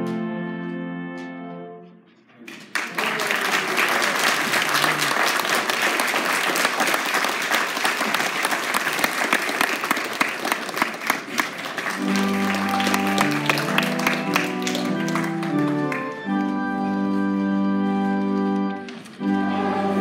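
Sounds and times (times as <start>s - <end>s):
organ chords: 0.0s - 2.1s, 11.6s - 20.0s
congregation clapping: 2.4s - 20.0s.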